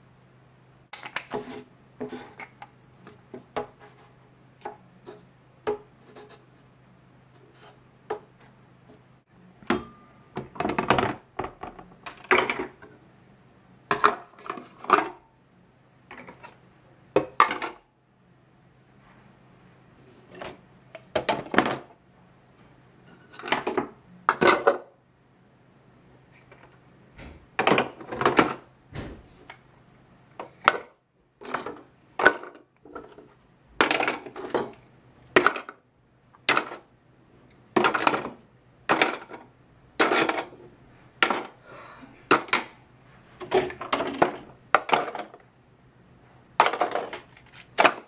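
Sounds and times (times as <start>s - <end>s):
faint steady low hum: 0.0s - 48.0s
plastic toy pots knocking and clattering: 9.7s - 12.9s, 13.9s - 15.2s, 16.1s - 17.8s, 20.4s - 21.9s, 23.3s - 24.9s, 27.6s - 28.6s, 30.4s - 35.8s, 36.4s - 36.9s, 37.7s - 40.6s, 41.2s - 41.6s, 42.3s - 42.8s, 43.4s - 45.4s, 46.6s - 48.0s.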